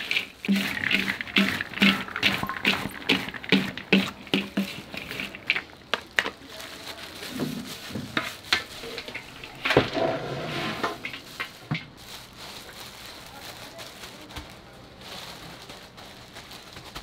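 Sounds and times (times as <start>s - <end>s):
snacks poured into steel tray: 0.0s - 10.0s
spatula stirring sticky snack balls: 0.0s - 10.2s, 10.8s - 13.4s.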